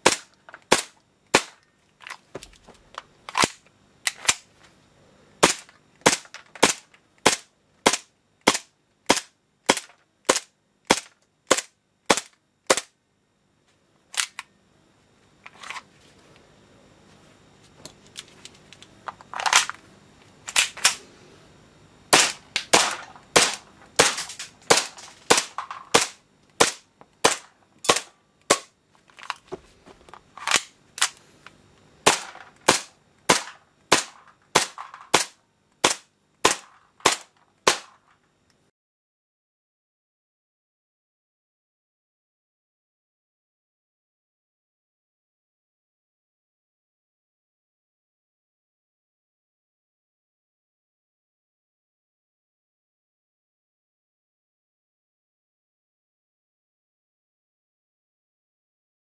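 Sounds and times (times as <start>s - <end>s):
airsoft pistol shots: 0.0s - 1.6s, 5.4s - 12.9s, 22.1s - 28.7s, 32.0s - 38.0s.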